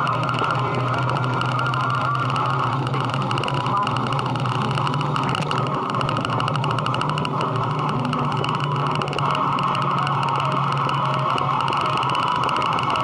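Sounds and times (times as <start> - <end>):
motorcycle engine running steadily: 0.0 - 13.0.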